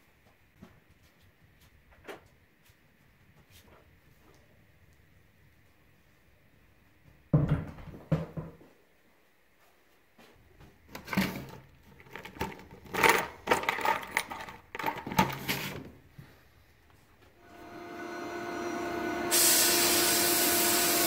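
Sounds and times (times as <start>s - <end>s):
metal parts rattling in plastic tub: 10.9s - 16.0s.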